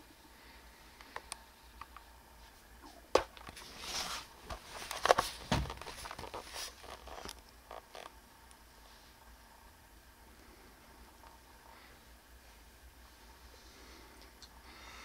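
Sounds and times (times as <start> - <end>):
fabric rustling: 2.4 - 8.1
dull thump: 5.4 - 5.8.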